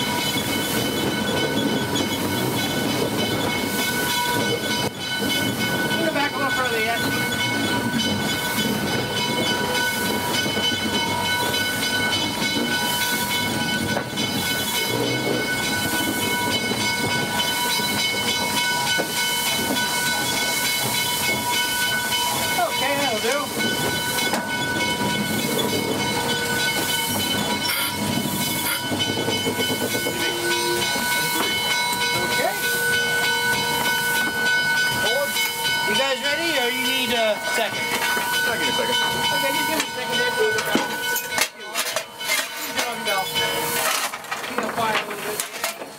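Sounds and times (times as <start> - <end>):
steam hissing: 0.0 - 41.4.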